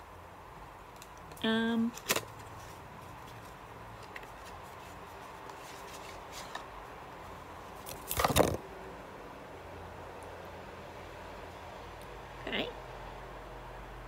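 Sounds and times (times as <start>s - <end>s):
packaging rustling scrape: 2.0s - 6.7s.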